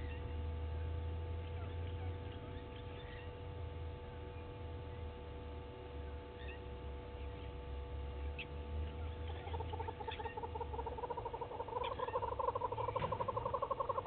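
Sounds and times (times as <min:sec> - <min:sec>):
steady low rumble: 0:00.0 - 0:14.0
fast pulsing animal call: 0:08.3 - 0:14.0.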